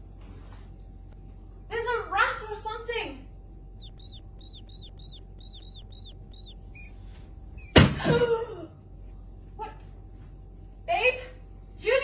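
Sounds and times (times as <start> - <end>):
high chirping squeaks: 3.8 - 7.0, 7.6 - 7.8.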